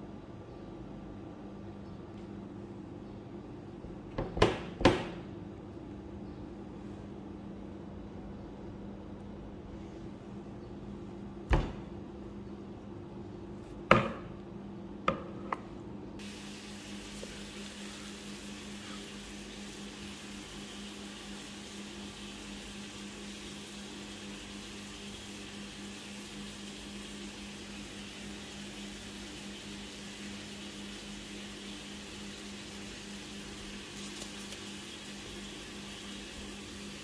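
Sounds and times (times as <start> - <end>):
faint steady hiss: 16.2 - 37.0.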